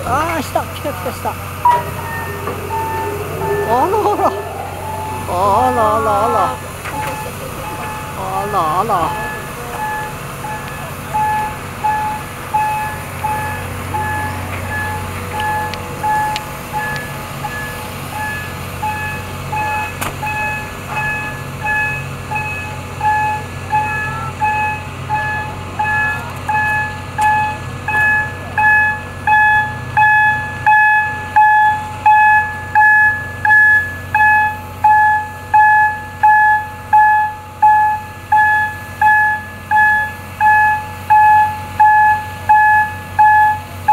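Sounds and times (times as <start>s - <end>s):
low hum: 1.1s - 8.3s
warning beeper: 1.6s - 9.4s.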